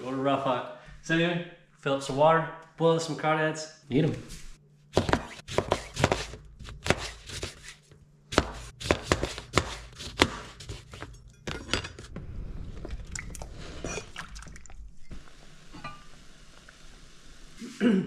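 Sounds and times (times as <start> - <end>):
steady hiss: 15.1 - 18.0.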